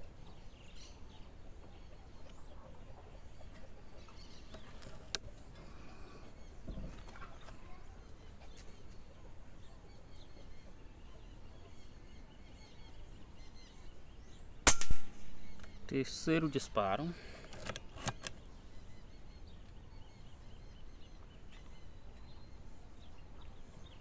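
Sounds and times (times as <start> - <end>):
faint outdoor background: 0.0 - 24.0
air rifle shot crack: 14.6 - 15.4.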